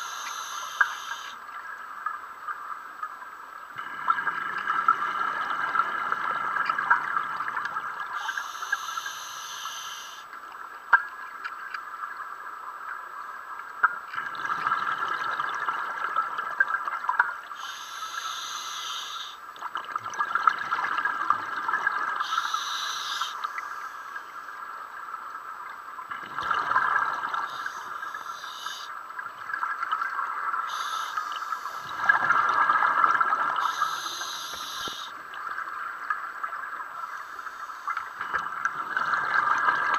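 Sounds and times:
diver breathing through regulator: 33.6 - 35.1.

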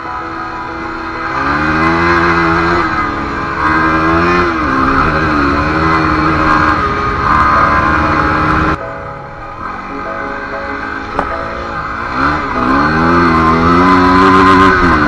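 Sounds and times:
motorcycle engine revving: 0.0 - 8.8, 9.4 - 15.0
steady rushing noise: 0.0 - 15.0.

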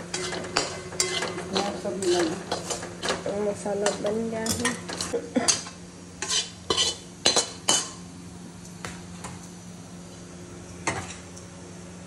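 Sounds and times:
spoon scraping metal pan: 0.0 - 8.0
steady low hum: 0.0 - 12.0.

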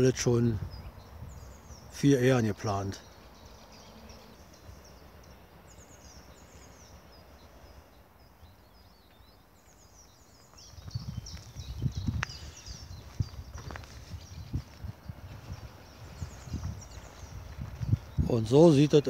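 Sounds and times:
small birds chirping: 0.0 - 19.0
footsteps on soil and brushwood: 9.1 - 18.8.

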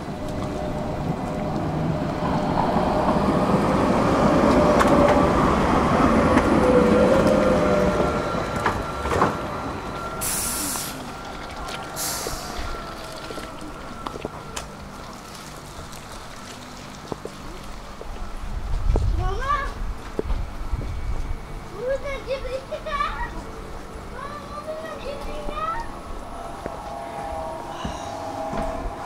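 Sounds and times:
tram running on rails: 0.0 - 29.0
short hisses: 10.2 - 11.0.

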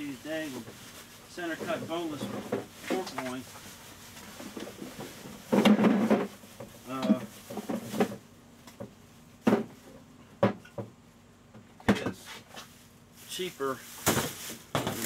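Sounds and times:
rustling and clattering: 0.3 - 11.0, 13.9 - 15.0.

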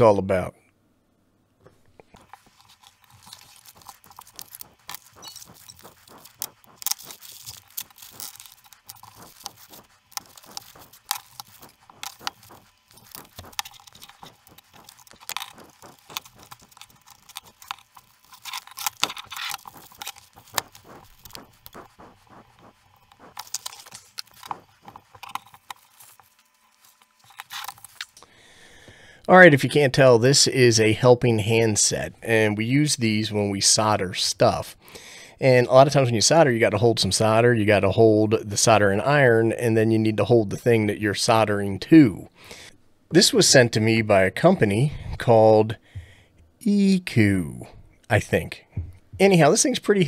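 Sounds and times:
plastic wrapping crinkling: 2.1 - 28.2.

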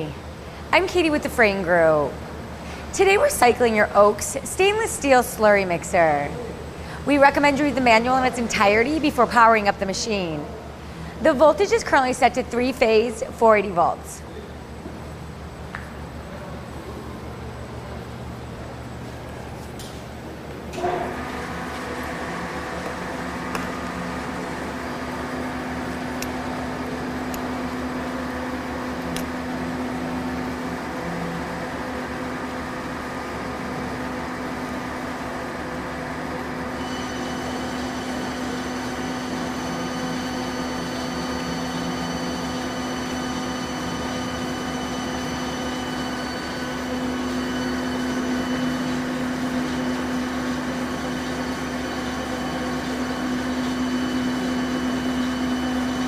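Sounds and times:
slurry mixer motor humming: 20.7 - 56.0.

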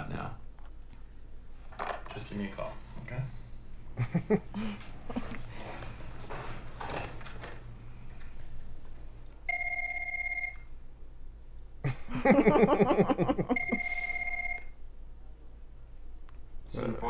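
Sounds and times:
desk telephone ringing: 9.5 - 10.7, 12.6 - 14.7.

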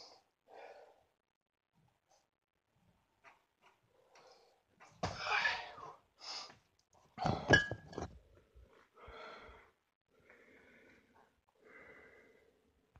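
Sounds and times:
man breathing hard: 9.0 - 12.6.

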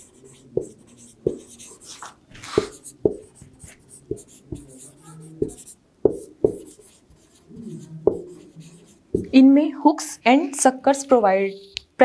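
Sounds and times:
felt tip scratching whiteboard: 0.0 - 9.3
marker tip tapping whiteboard: 5.4 - 6.7.

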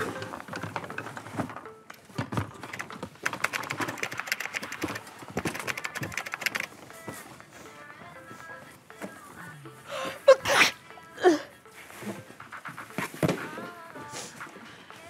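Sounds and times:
keyboard typing clicks: 0.0 - 7.0.

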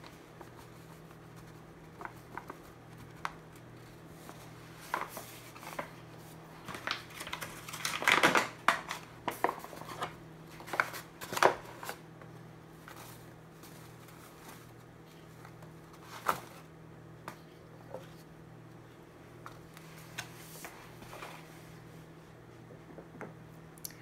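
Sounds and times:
flour rustling: 0.0 - 16.7
steady low hum: 0.0 - 24.0.

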